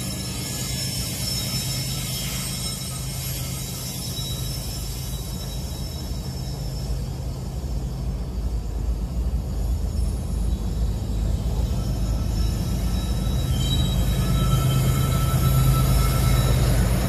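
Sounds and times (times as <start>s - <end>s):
diesel locomotive rolling past: 0.0s - 17.0s.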